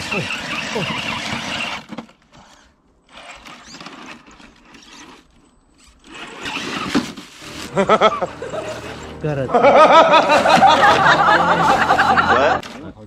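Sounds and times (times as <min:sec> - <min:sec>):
rc car motor whirring: 0:00.0 - 0:09.2.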